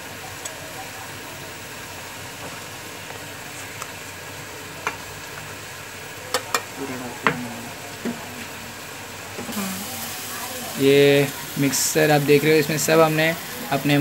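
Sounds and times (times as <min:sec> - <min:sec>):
onion and tomato sizzling in oil: 0:00.0 - 0:14.0.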